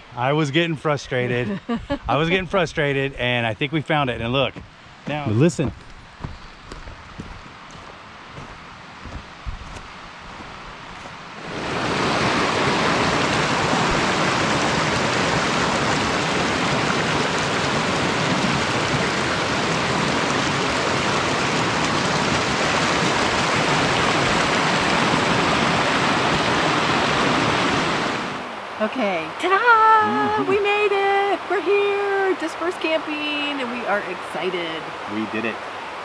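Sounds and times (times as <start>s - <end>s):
creek rushing over rocks: 4.2s - 36.0s.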